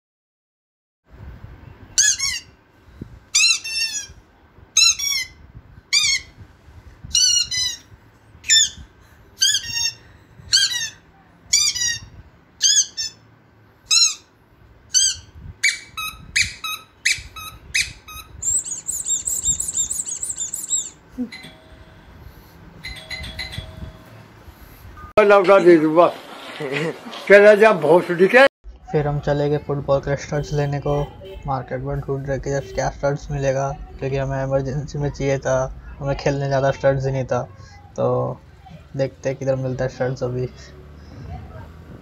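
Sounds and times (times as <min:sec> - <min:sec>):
short high-pitched squeaks: 0:15.0 - 0:22.6.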